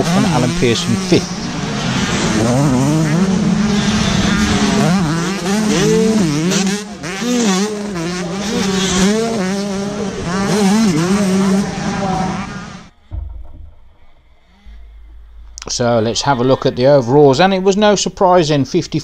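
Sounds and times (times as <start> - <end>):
motocross bikes revving hard: 0.0 - 12.9.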